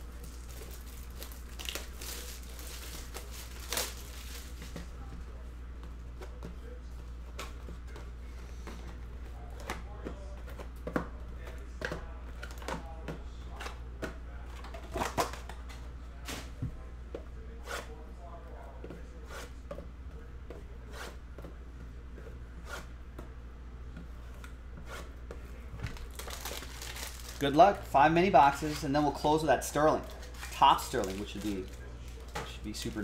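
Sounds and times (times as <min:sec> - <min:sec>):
wrapper crinkling and tearing: 0:00.0 - 0:04.6, 0:26.0 - 0:27.6, 0:30.0 - 0:33.0
steady low hum: 0:00.0 - 0:33.0.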